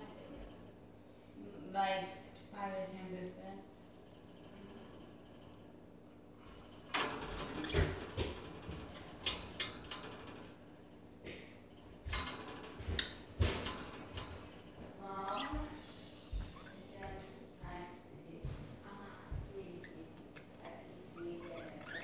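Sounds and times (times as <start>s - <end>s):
birds rattling cage bars: 6.5s - 15.8s, 19.8s - 22.0s.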